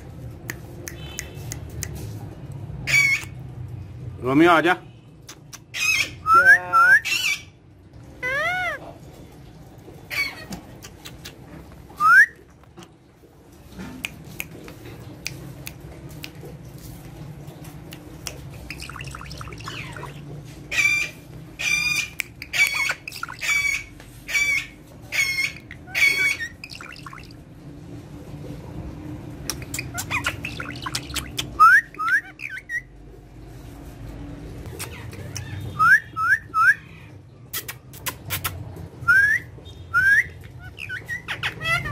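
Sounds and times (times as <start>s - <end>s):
parakeet squawks: 2.8s - 3.4s, 5.4s - 7.6s, 8.2s - 9.0s, 10.1s - 11.3s, 18.7s - 27.4s, 29.5s - 32.9s, 40.0s - 41.9s.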